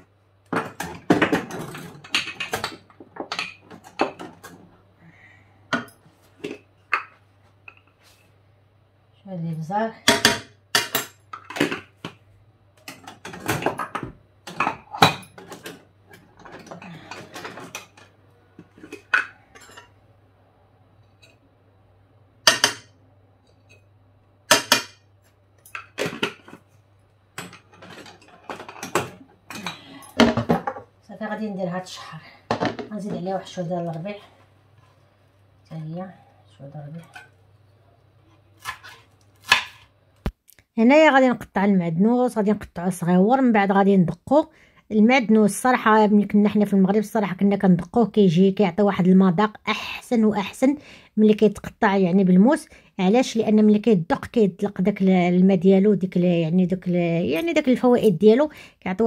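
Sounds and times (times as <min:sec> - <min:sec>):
faint steady low hum: 0:00.0 - 0:59.0
jar and utensils clattering: 0:27.4 - 0:30.8.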